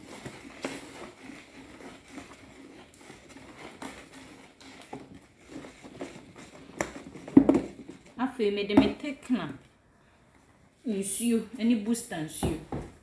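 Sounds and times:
spoon swishing thick liquid: 0.0s - 8.2s.

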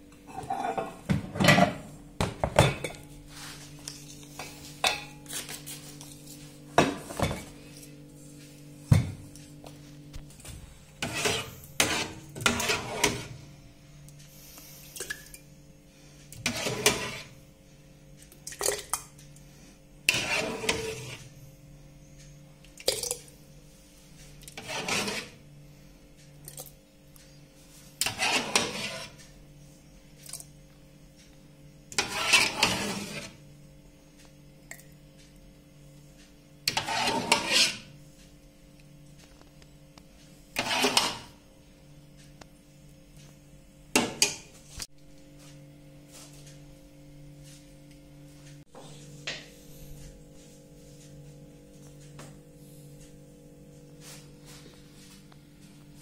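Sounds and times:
metal ladle scraping in pot: 0.3s - 1.8s, 11.0s - 13.4s, 16.3s - 17.4s, 20.1s - 21.3s, 24.5s - 25.4s, 28.0s - 29.2s, 31.9s - 33.4s, 36.7s - 38.0s, 40.6s - 41.4s.

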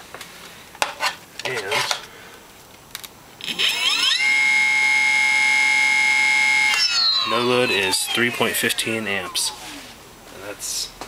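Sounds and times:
electric motor whine: 3.4s - 10.0s.

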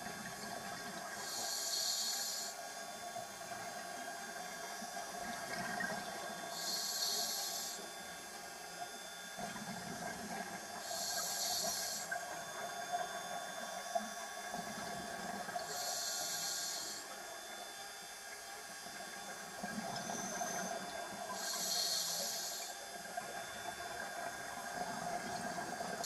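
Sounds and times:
regulator inhalation hiss: 1.2s - 2.6s, 6.5s - 7.9s, 10.8s - 12.2s, 15.6s - 17.2s, 21.3s - 22.8s.

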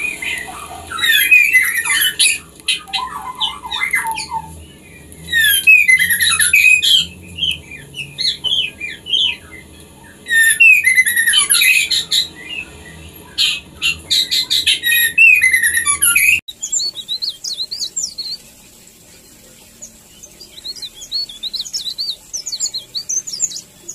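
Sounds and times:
bird chirping rapidly: 0.0s - 18.5s, 19.1s - 23.9s.

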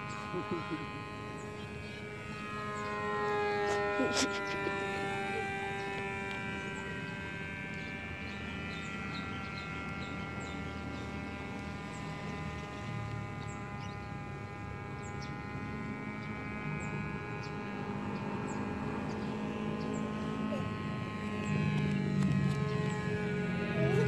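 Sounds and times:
model plane motor droning: 0.0s - 24.0s.

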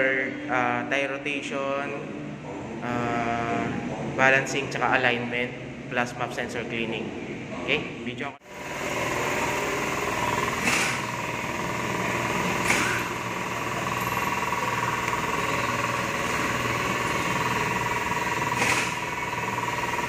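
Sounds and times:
machinery humming with whine: 8.4s - 20.0s.

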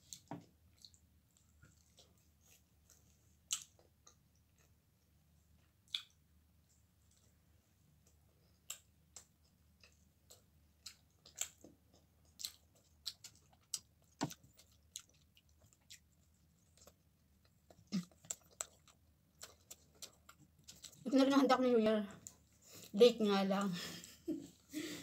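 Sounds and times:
person chewing pizza: 0.0s - 4.9s, 5.7s - 6.2s, 8.0s - 21.1s.

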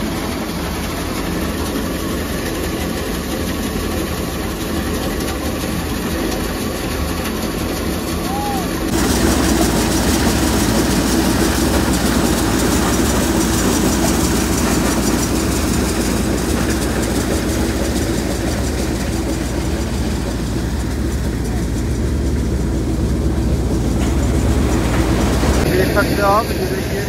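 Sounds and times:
tractor engine droning: 0.0s - 27.0s
threshing drum noise: 8.3s - 25.9s.

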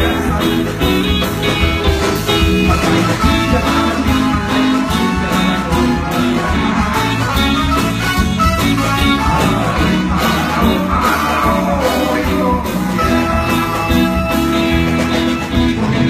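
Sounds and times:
person singing: 2.3s - 6.7s, 9.0s - 13.8s.

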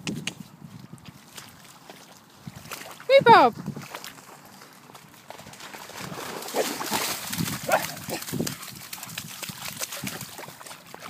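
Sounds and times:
dog moving in wet grass: 0.9s - 11.0s.

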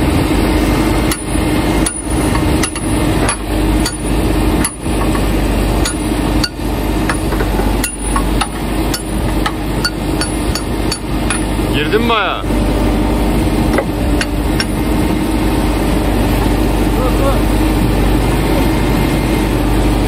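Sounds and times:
engine idling: 0.0s - 20.0s
hammer striking steel pin: 2.6s - 5.2s, 5.8s - 11.5s.

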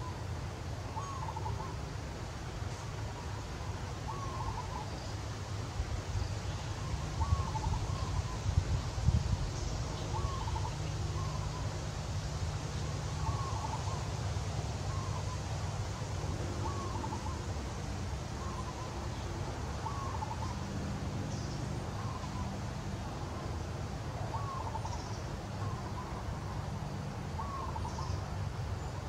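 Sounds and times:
bird calling: 0.9s - 1.8s, 3.1s - 5.2s, 6.2s - 8.6s, 9.6s - 12.0s, 12.7s - 22.6s, 24.3s - 26.6s, 27.3s - 29.0s.

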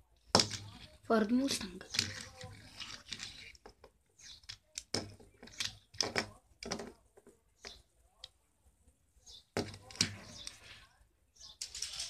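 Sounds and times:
toy car clicking and tapping: 0.2s - 8.4s.

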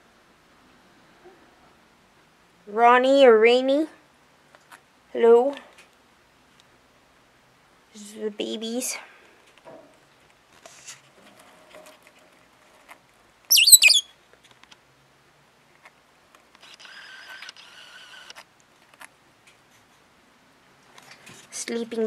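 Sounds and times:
lovebirds calling: 13.5s - 14.1s.

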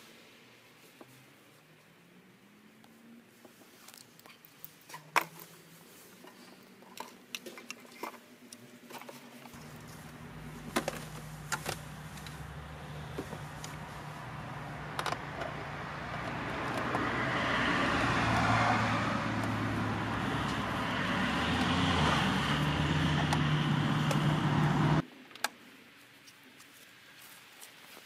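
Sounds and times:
car engine running inside cabin: 9.6s - 17.2s.

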